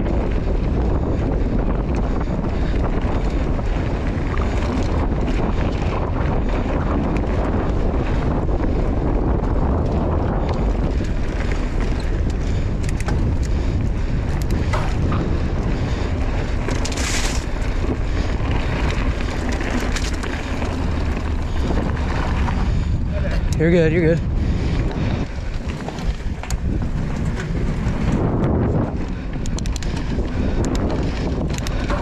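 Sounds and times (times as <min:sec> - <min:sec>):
bike clicks and rattles: 0:00.0 - 0:32.0
tyres rumbling on dirt: 0:00.0 - 0:32.0
wind buffeting microphone: 0:00.0 - 0:32.0.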